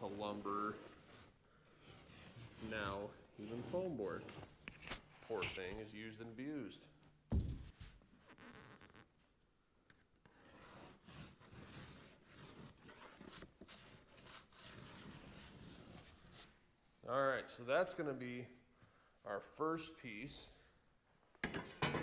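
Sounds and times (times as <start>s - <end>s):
pencil scratching on foam: 0.4s - 4.4s, 10.3s - 16.5s.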